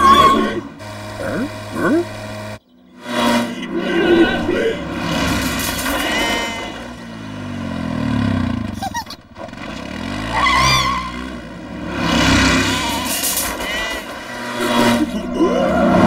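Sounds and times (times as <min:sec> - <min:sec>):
lawn mower driving past: 0:00.0 - 0:15.1
quad bike driving past: 0:00.0 - 0:16.0
tractor driving past: 0:00.0 - 0:16.0.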